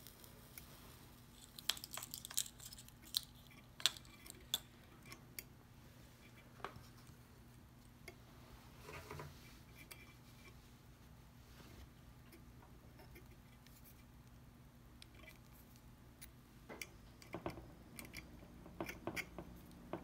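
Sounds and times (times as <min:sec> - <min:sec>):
clinks of small metal parts: 0:01.4 - 0:04.7.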